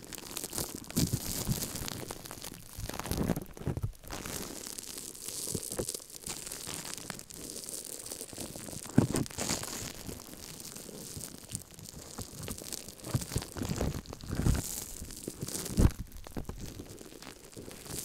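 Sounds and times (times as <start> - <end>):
slime crackling and crinkling: 0.0 - 18.0
slime squelch: 0.0 - 18.0.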